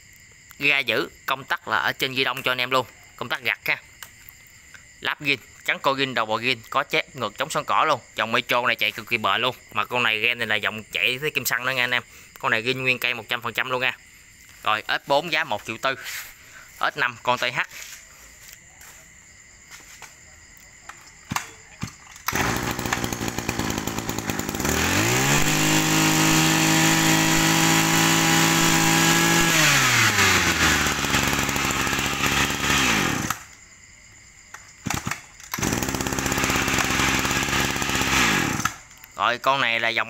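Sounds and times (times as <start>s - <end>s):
brush cutter engine revving: 21.3s - 33.6s, 34.8s - 39.0s.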